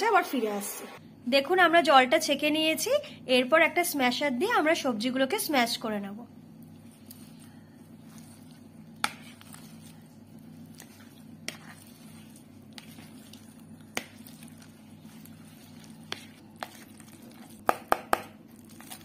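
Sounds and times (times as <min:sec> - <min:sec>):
steady low hum: 0:00.0 - 0:19.0
vegetables squishing: 0:06.6 - 0:19.0.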